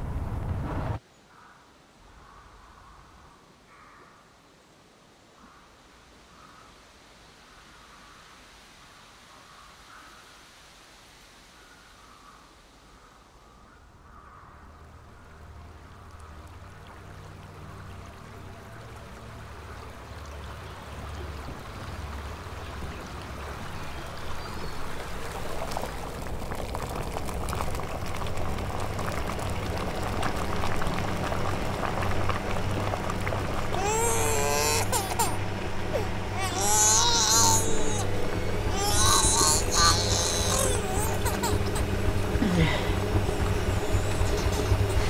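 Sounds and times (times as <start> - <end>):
low hum: 0.0 - 1.0, 14.5 - 45.0
kettle water bubbling and hissing: 15.3 - 45.0.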